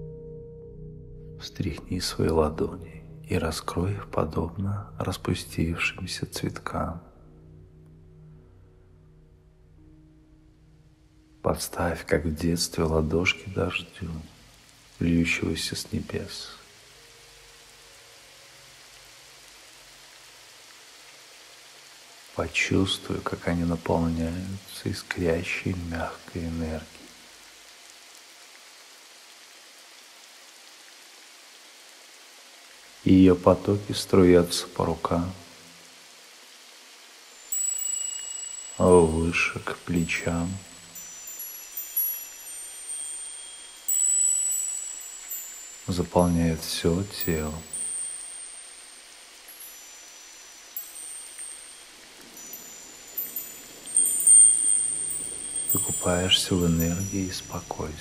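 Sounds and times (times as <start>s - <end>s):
soft even hiss: 1.3s - 58.0s
rain falling: 1.4s - 58.0s
wind chimes tinkling: 37.2s - 58.0s.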